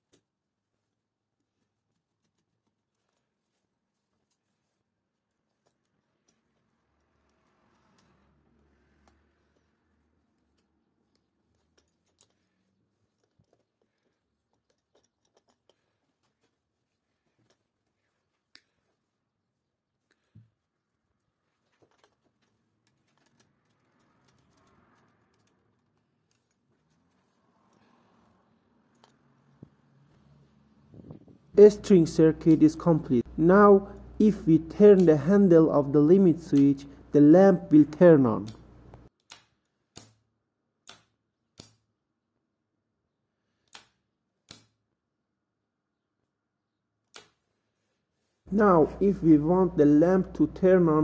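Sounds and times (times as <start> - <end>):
faint clicks of handling a wire: 1.4 - 19.2, 20.0 - 28.2.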